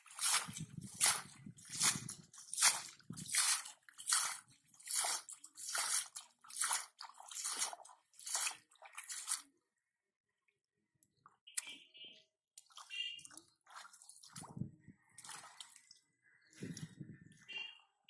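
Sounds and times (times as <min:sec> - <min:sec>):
faint wet splashes: 0:00.0 - 0:09.5, 0:12.6 - 0:17.8
hands splashing water and mud: 0:00.0 - 0:09.5, 0:12.6 - 0:14.6, 0:15.2 - 0:16.0.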